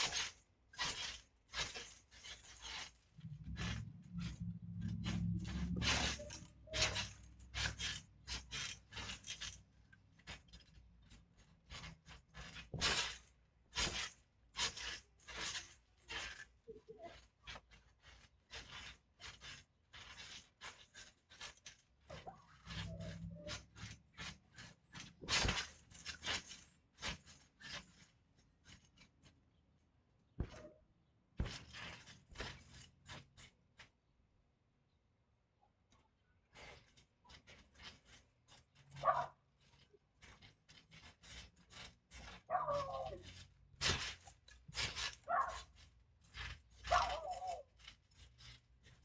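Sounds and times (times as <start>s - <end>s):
bodies thumping on trampoline mat: 30.4s - 30.8s.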